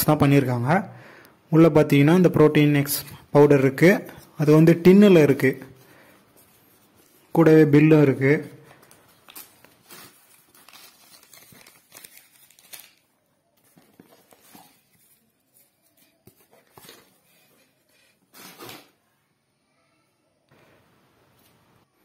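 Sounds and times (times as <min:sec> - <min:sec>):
cardboard and paper rustling: 0:08.2 - 0:19.0.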